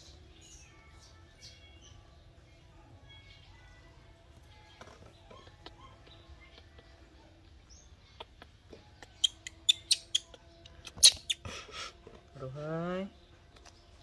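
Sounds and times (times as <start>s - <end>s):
monkey high-pitched squeaks: 8.1s - 11.5s.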